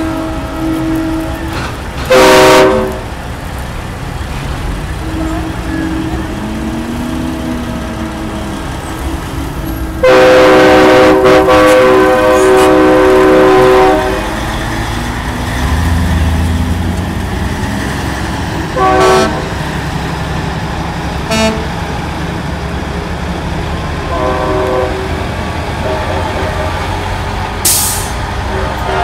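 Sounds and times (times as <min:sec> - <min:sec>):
truck air horns blasting: 0:00.0 - 0:03.1, 0:09.7 - 0:14.4, 0:18.7 - 0:19.6, 0:21.2 - 0:21.8, 0:24.0 - 0:29.0
diesel engine rumble: 0:00.0 - 0:29.0
short air hiss: 0:27.7 - 0:28.2.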